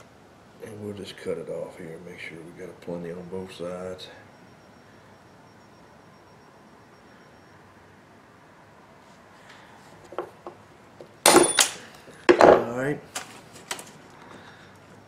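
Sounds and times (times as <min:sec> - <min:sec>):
pliers clattering onto wooden bench: 0:11.3 - 0:13.9.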